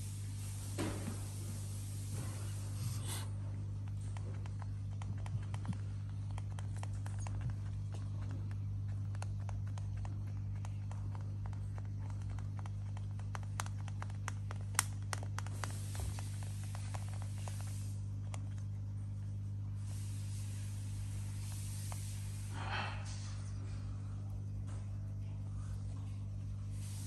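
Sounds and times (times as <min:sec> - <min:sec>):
animal hissing: 0:00.0 - 0:03.4, 0:19.8 - 0:23.4
steady low hum: 0:00.0 - 0:27.0
light clicks and taps: 0:03.8 - 0:18.7.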